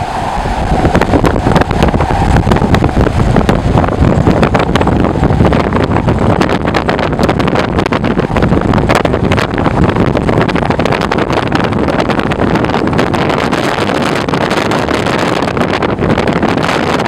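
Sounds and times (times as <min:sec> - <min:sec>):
hurricane wind buffeting microphone: 0:00.0 - 0:17.0.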